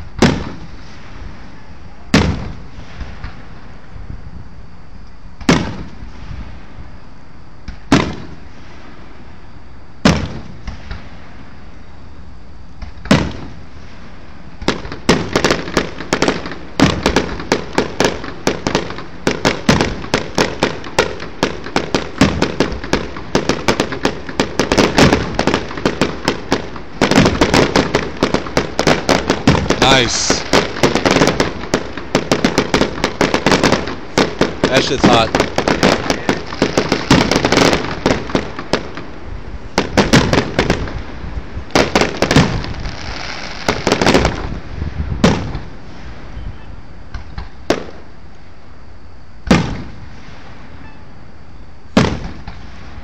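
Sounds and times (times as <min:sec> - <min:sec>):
firework booms: 0:00.0 - 0:03.9, 0:05.4 - 0:06.9, 0:07.6 - 0:09.2, 0:10.0 - 0:11.6, 0:12.8 - 0:46.5, 0:47.1 - 0:48.1, 0:49.4 - 0:50.8, 0:51.9 - 0:53.0
rapid barrage of bangs: 0:14.6 - 0:39.1, 0:39.7 - 0:41.0.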